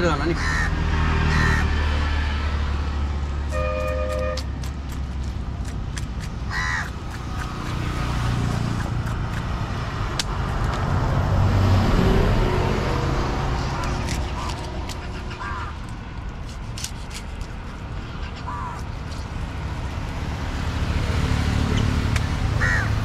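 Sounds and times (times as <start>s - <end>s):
vehicle engine rumbling: 0.0s - 23.0s
two-tone horn beep: 3.5s - 4.4s
knife scaling fish on wood: 16.2s - 17.8s.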